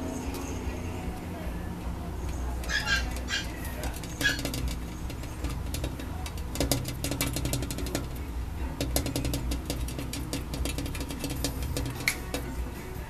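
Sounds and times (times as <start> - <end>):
steady low hum: 0.0 - 13.0
light clicks and taps: 2.2 - 12.5
puppy yelp: 2.7 - 3.6.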